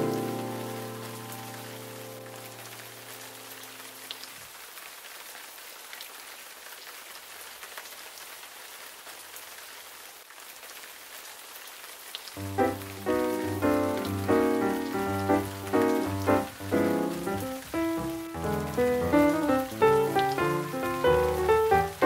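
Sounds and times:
held chord: 12.4 - 22.0.

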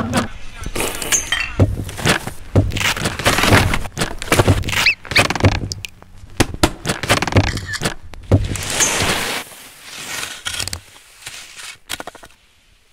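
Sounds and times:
low thumps: 1.6 - 7.6
short rising squeak: 4.7 - 5.3.

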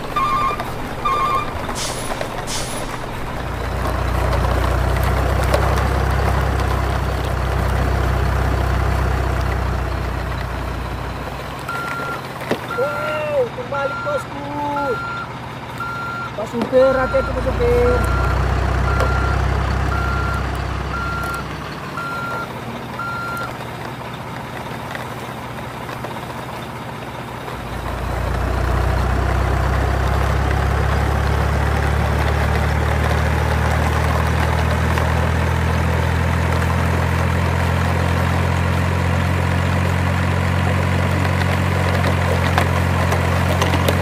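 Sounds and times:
truck reversing alarm beeping: 0.0 - 4.9, 5.9 - 24.2
truck engine running: 0.0 - 44.0.

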